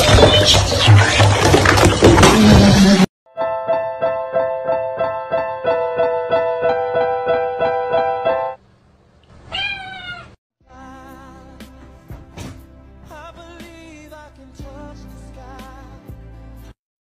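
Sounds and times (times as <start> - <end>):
digital piano repeated notes: 3.3 - 8.6
cat meowing: 9.4 - 10.4.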